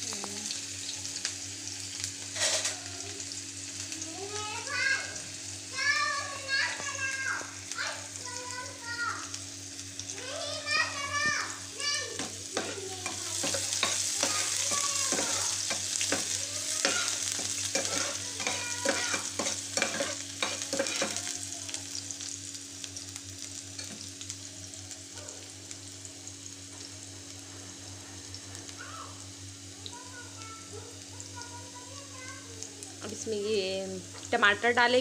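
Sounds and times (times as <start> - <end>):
onion sizzling in oil: 0.0 - 35.0
spoon scraping metal pan: 15.1 - 21.2.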